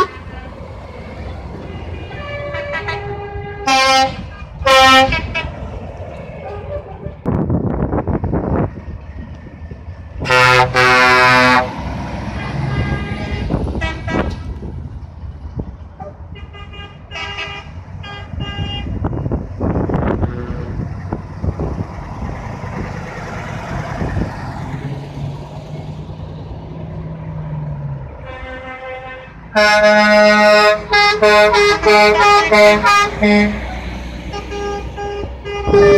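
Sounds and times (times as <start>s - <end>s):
truck air horns: 0.0s - 0.5s, 1.5s - 5.6s, 6.4s - 7.3s, 10.2s - 14.5s, 16.0s - 19.1s, 20.0s - 20.9s, 28.2s - 35.9s
diesel truck engines rumbling: 0.0s - 35.9s.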